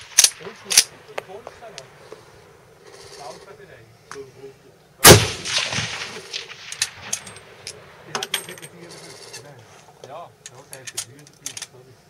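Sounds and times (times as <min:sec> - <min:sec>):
metallic clicks of rifle actions: 0:00.0 - 0:01.3, 0:06.6 - 0:09.3, 0:10.4 - 0:11.8
rifle shot echo: 0:05.0 - 0:08.3.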